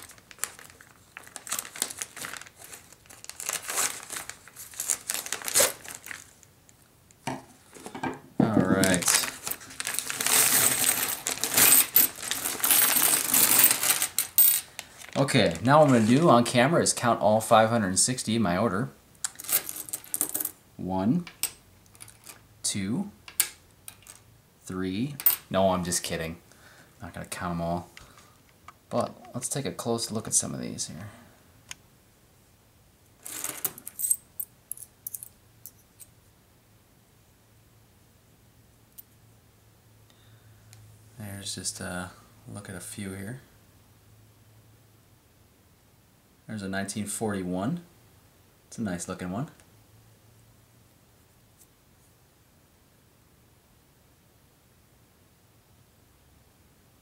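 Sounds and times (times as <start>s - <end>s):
coins pouring onto wooden table: 8.8s - 14.7s, 19.3s - 20.6s, 33.2s - 35.3s
coins jingling: 10.2s - 14.6s
coins clinking in hand: 10.2s - 14.7s.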